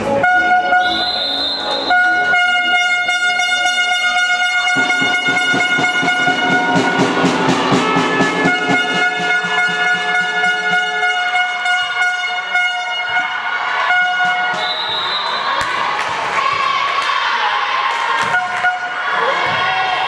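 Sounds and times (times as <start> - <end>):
horn long blasts: 0.2 - 15.4
fast rhythmic beat: 3.5 - 12.5.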